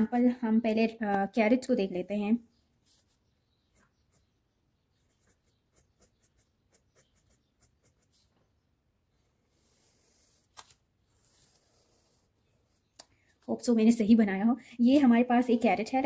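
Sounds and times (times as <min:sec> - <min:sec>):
pencil scratching on paper: 0:02.8 - 0:08.3, 0:09.5 - 0:10.5, 0:11.1 - 0:12.9.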